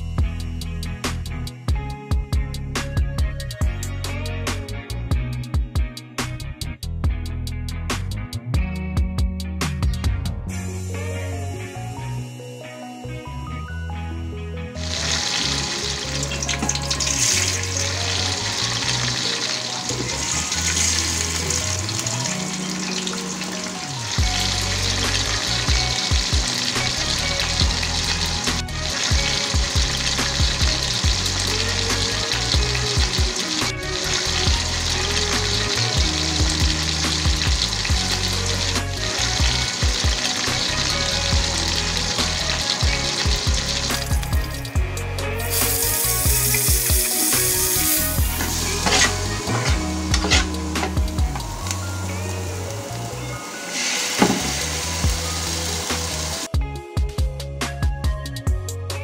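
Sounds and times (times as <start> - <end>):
background music with steady beat: 0.0 - 59.0
fish sizzling in hot oil: 14.8 - 56.5.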